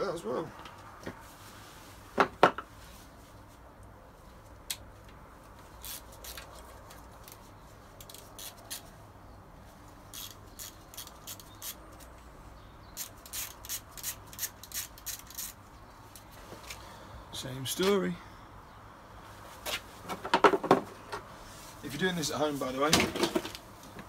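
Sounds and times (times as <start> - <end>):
ratchet clicking: 10.1 - 11.8, 13.0 - 15.6.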